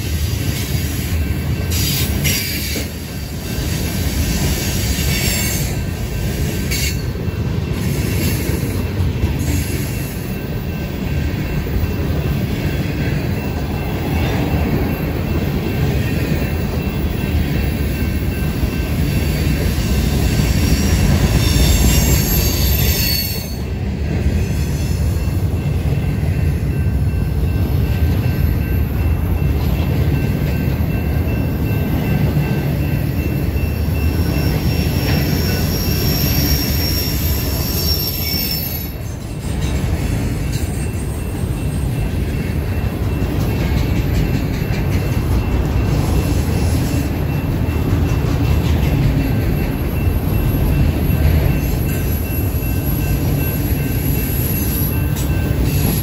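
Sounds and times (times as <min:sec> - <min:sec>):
train cars rumbling on rails: 0:00.0 - 0:56.0
high-pitched wheel squeal: 0:20.8 - 0:23.6, 0:34.6 - 0:39.0.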